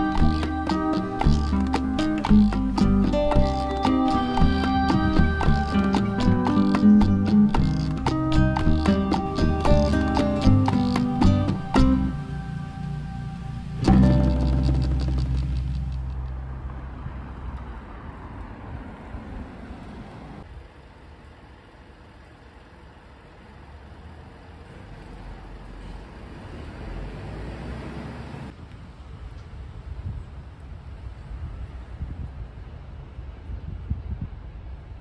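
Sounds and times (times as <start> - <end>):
held musical chord: 0.0 - 16.2
distant road traffic hum: 0.0 - 33.8.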